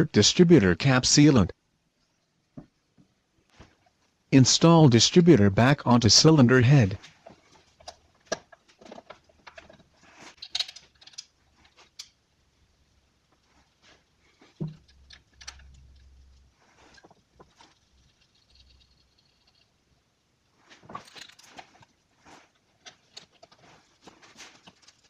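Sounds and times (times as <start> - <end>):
metal part clicks and knocks: 10.4 - 11.3.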